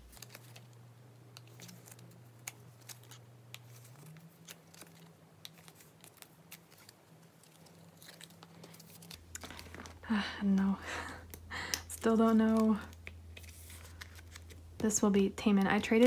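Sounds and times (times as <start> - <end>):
cards clicking and rustling: 0.0 - 10.0, 11.0 - 14.8.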